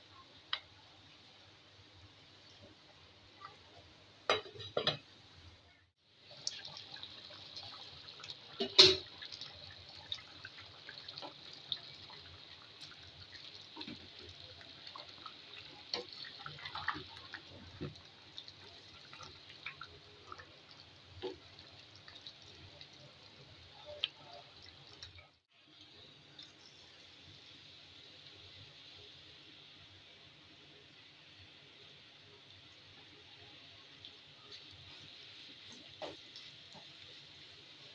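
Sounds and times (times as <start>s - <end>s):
curry bubbling at a simmer: 6.0s - 26.7s.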